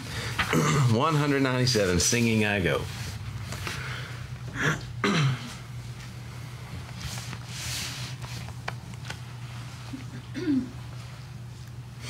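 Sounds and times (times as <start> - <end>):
low electrical hum: 0.0 - 12.0
soft rustle: 6.0 - 10.0.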